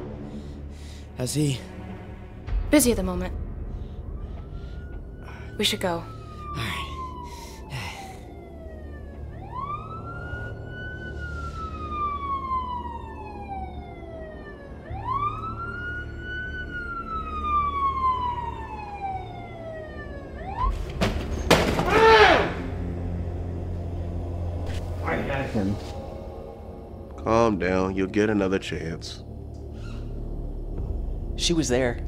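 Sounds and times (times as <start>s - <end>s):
police siren wailing: 3.2s - 30.3s.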